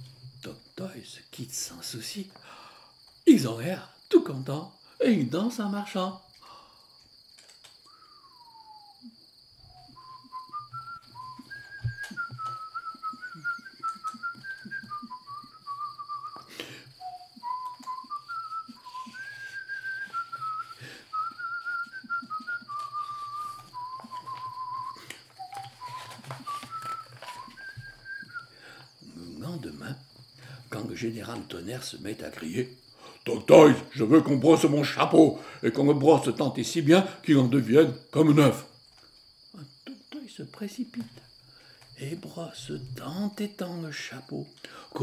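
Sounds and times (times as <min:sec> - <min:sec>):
person whistling a tune: 0:07.9 - 0:28.5.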